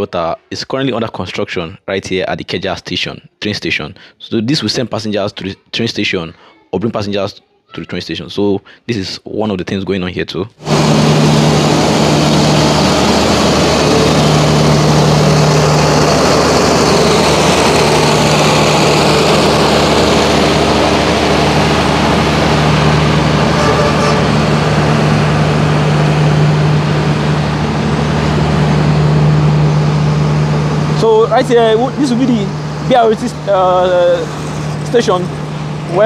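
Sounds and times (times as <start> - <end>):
generator humming: 10.6 - 36.0
loud road traffic: 10.6 - 36.0.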